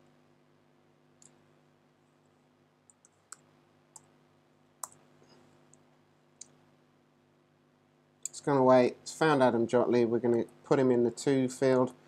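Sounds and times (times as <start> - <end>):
low steady hum: 0.0 - 12.0
computer mouse clicks: 2.9 - 4.1, 4.8 - 5.0.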